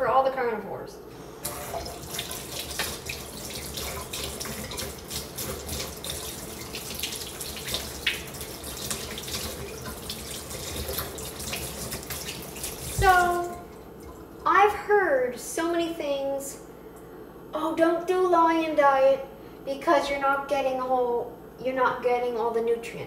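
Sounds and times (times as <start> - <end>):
faucet running into sink: 1.4 - 14.2.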